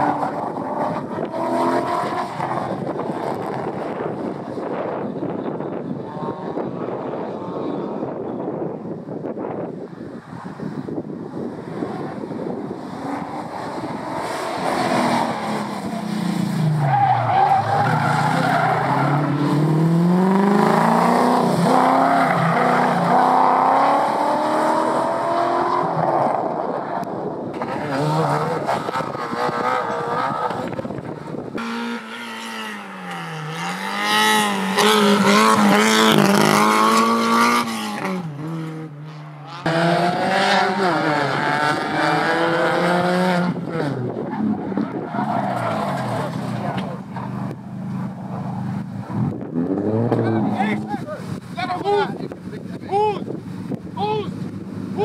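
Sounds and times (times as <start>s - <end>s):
race car engines revving: 0.0s - 55.0s
tyres squealing and skidding: 12.9s - 19.8s, 21.6s - 23.5s, 44.2s - 49.0s.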